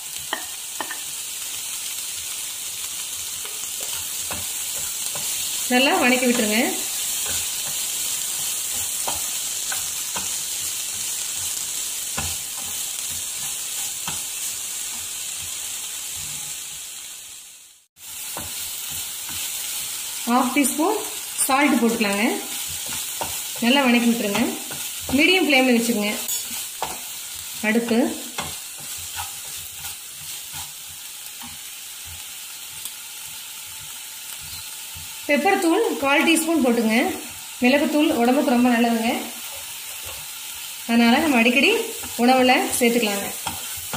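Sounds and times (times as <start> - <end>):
vegetables sizzling in oil: 0.0 - 43.9
spatula scraping pan: 3.4 - 16.8, 21.7 - 35.2, 41.3 - 43.9
wooden spatula scraping pan: 27.9 - 32.2.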